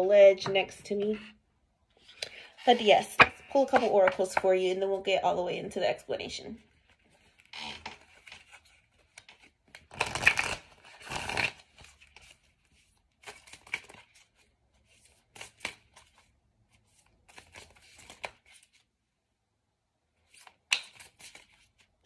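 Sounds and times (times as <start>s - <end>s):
cards being shuffled: 2.1s - 4.4s, 6.7s - 18.9s, 20.2s - 22.0s.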